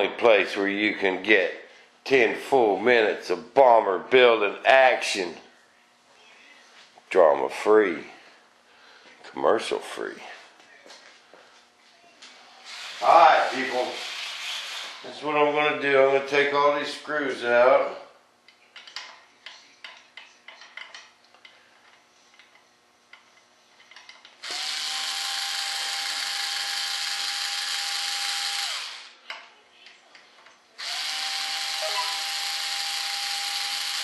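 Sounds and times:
power drill motor whining: 0:12.6 - 0:15.1, 0:24.4 - 0:29.2, 0:30.8 - 0:34.0.

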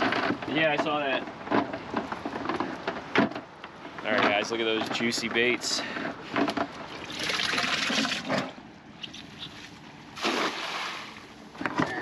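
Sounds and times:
net splashing onto water: 0:10.2 - 0:11.2.

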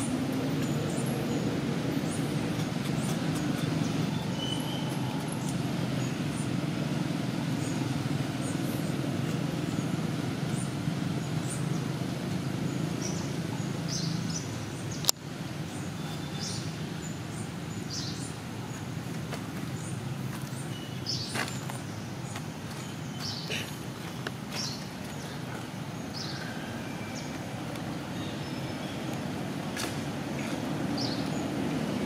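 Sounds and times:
bird chirps: 0:02.9 - 0:06.5.

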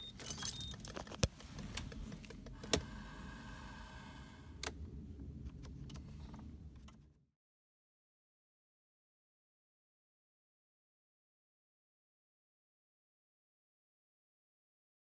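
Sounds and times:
low steady rumble: 0:00.0 - 0:07.2.

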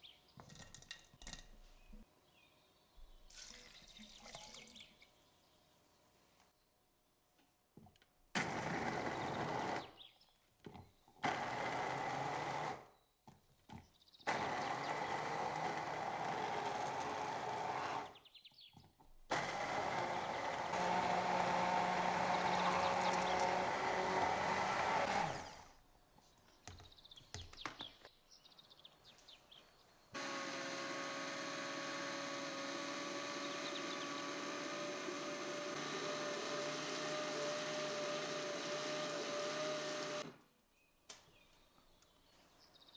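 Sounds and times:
stick blender grinding: 0:08.4 - 0:09.9, 0:11.2 - 0:12.8, 0:14.3 - 0:18.2, 0:19.3 - 0:25.8, 0:30.2 - 0:40.4
countertop blender motor hum: 0:19.3 - 0:25.7, 0:30.2 - 0:40.3.

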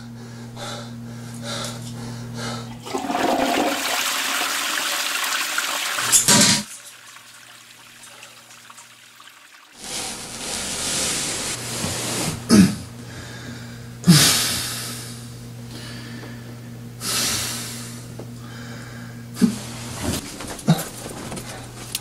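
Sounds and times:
man breathing heavily: 0:00.0 - 0:02.8, 0:12.5 - 0:19.6
steady low hum: 0:00.0 - 0:03.2, 0:09.8 - 0:22.0
man coughing: 0:12.5 - 0:12.9.

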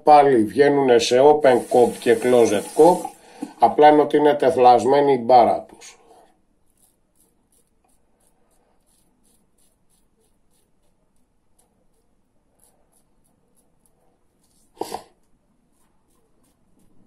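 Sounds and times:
razor scraping through stubble: 0:06.6 - 0:17.0.

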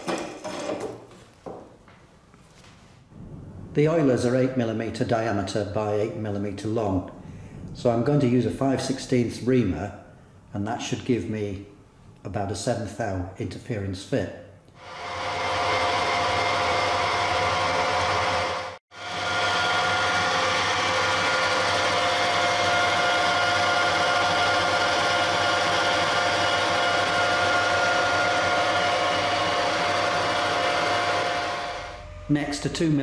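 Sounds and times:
lathe running with whine: 0:14.8 - 0:33.0.

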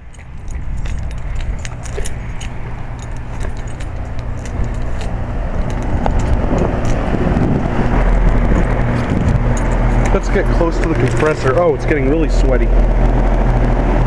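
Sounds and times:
compressor hum: 0:00.0 - 0:14.0
condenser fan whoosh: 0:03.9 - 0:14.0.

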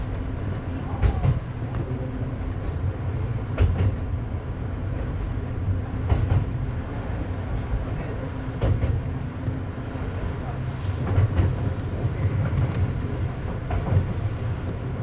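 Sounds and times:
railcar engine drone: 0:00.0 - 0:15.0
wheels clacking over rail joints: 0:10.5 - 0:15.0.

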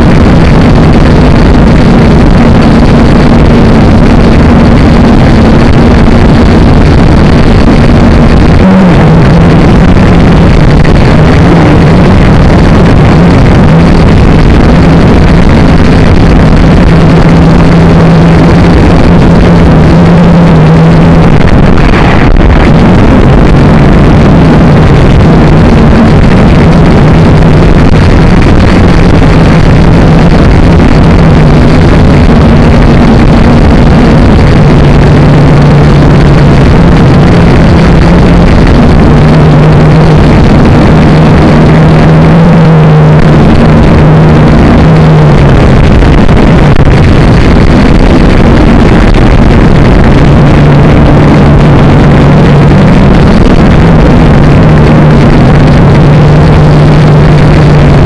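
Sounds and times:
drone motors buzzing: 0:00.0 - 0:45.9.

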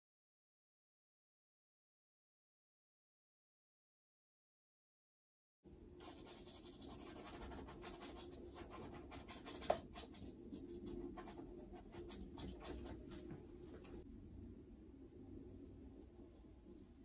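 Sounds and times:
scratchy brush strokes on canvas: 0:06.0 - 0:13.4.

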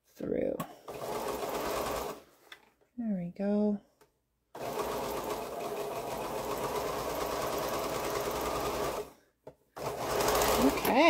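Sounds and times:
sewing machine stitching: 0:00.8 - 0:02.2, 0:04.6 - 0:09.2, 0:09.8 - 0:11.0.

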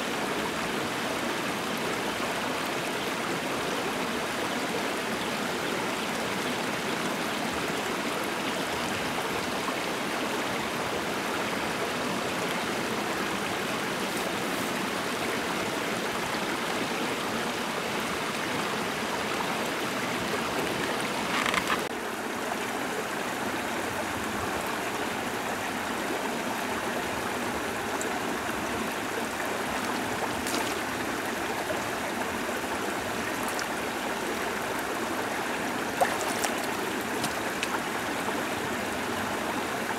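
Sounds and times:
water rushing over stones: 0:17.9 - 0:22.2, 0:24.0 - 0:39.9.

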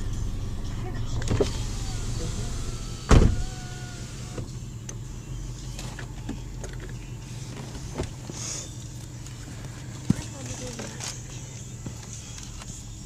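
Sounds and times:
car driving rumble: 0:00.0 - 0:13.0
loud thump: 0:03.0 - 0:03.6.

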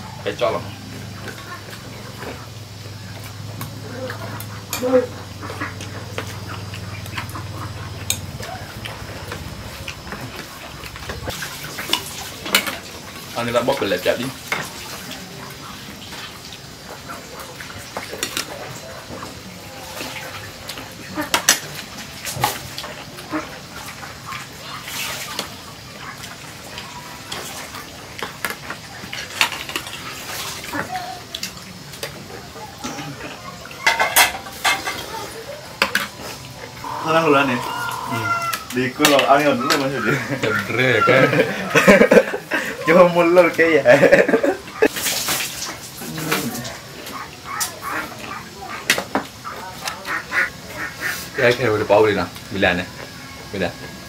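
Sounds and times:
plates and spoons clinking: 0:32.9 - 0:36.8
short animal call: 0:36.8 - 0:38.6.

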